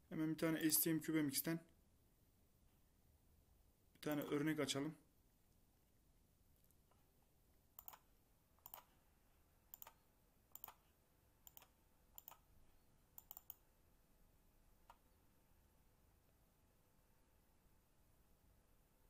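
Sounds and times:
computer mouse clicks: 0:07.8 - 0:08.9, 0:09.7 - 0:12.5, 0:13.2 - 0:13.6.

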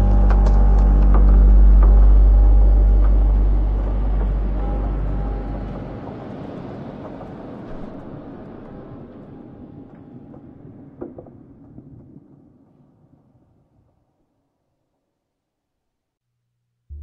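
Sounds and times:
deep low rumble: 0:00.0 - 0:09.3.

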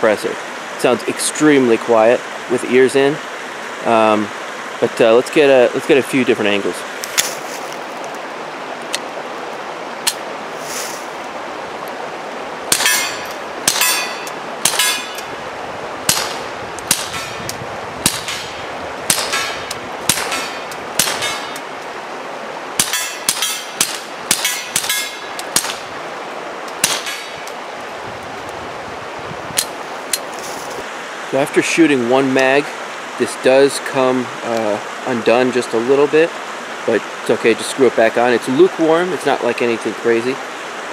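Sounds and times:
suppressed pistol shots: 0:16.1 - 0:17.4, 0:18.0 - 0:21.5, 0:26.8 - 0:27.4.

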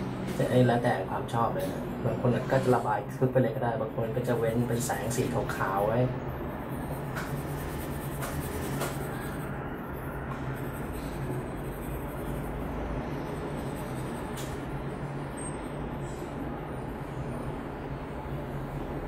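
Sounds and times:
low hum: 0:03.9 - 0:19.0
pencil scratching on paper: 0:04.0 - 0:14.9.

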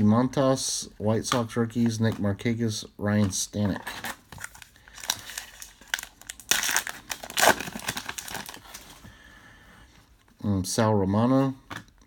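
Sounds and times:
plastic wrapper crinkling: 0:03.3 - 0:09.1.

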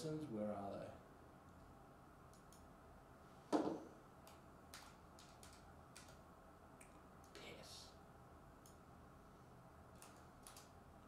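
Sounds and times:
computer keyboard key clicks: 0:04.2 - 0:06.2, 0:10.0 - 0:10.7.

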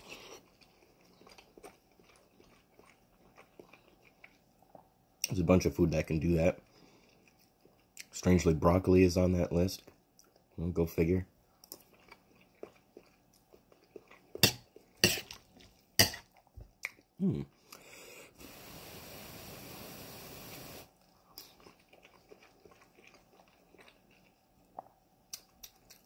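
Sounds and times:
chewing with mouth clicks: 0:00.0 - 0:05.4, 0:06.6 - 0:08.2, 0:09.8 - 0:10.6, 0:11.5 - 0:17.1, 0:20.9 - 0:26.0.

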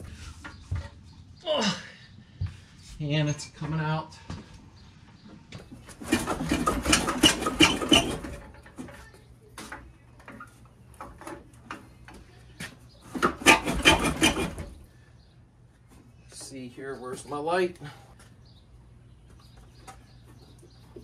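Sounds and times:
metal clattering and scraping: 0:05.7 - 0:09.2, 0:13.1 - 0:14.9.

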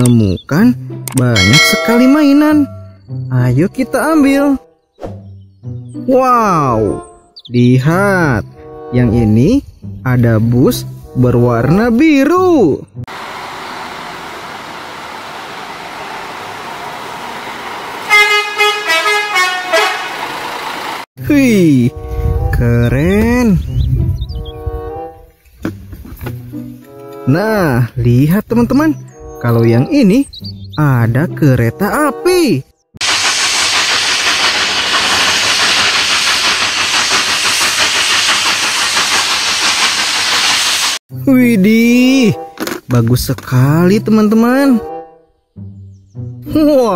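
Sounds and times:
locomotive exhaust beats: 0:01.4 - 0:03.2, 0:13.0 - 0:21.0, 0:33.0 - 0:41.0
multi-tone bus horn toots: 0:18.0 - 0:20.6
steam locomotives hissing: 0:33.0 - 0:41.0.

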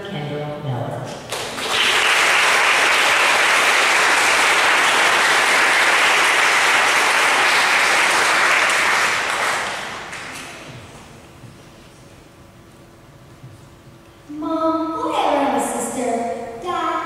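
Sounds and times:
audience applauding: 0:01.3 - 0:10.7.

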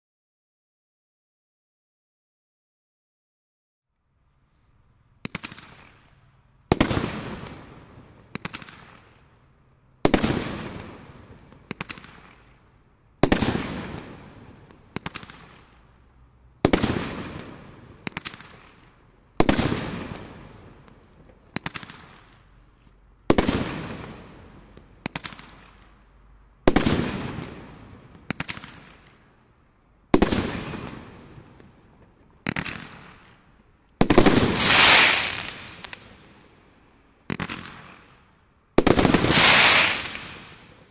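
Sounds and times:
roman candle firing shots: 0:05.2 - 0:09.3, 0:10.0 - 0:12.6, 0:13.2 - 0:15.8, 0:16.6 - 0:22.4, 0:23.3 - 0:25.9, 0:26.7 - 0:29.2, 0:30.2 - 0:33.4, 0:34.0 - 0:36.2, 0:38.8 - 0:40.9.

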